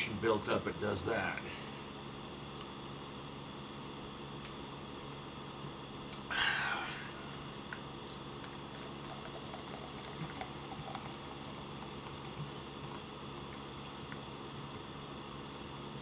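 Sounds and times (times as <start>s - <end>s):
soda fizzing: 8.4s - 14.1s.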